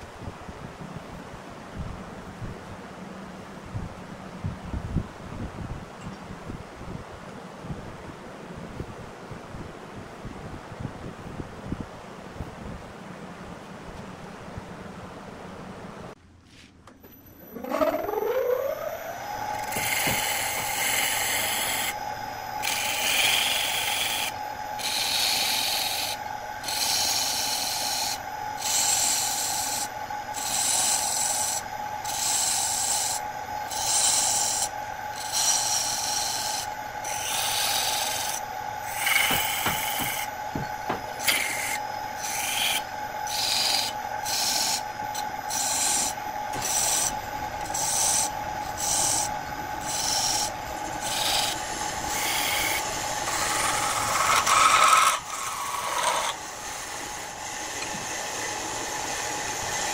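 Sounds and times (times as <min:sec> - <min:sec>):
wood lathe humming: 0:17.2 - 0:59.9
turning tool scraping wood: 0:19.6 - 0:22.0, 0:22.6 - 0:58.2
knocks: 0:39.2 - 0:41.1.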